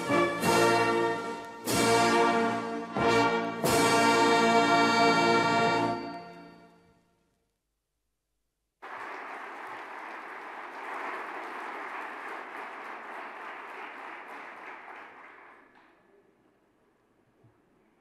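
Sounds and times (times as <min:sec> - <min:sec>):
large audience applauding: 0:08.8 - 0:15.9.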